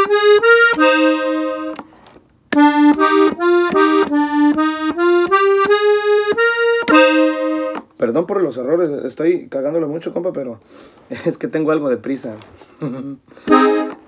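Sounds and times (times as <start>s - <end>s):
button accordion notes: 0.0s - 8.0s, 13.4s - 14.0s.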